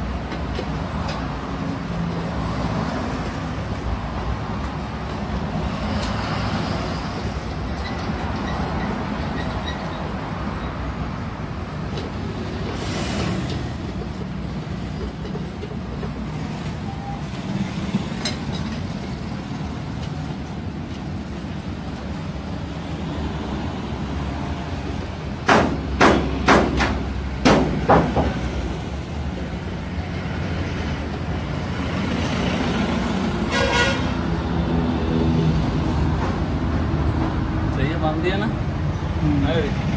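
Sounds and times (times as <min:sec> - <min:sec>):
sharp knocks of hand tools: 0:25.4 - 0:28.4.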